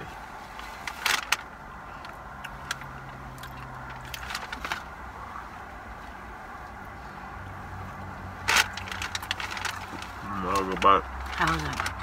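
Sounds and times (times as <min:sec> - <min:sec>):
vehicle cabin hum: 0:00.0 - 0:12.0
food packaging rustling: 0:08.5 - 0:12.0.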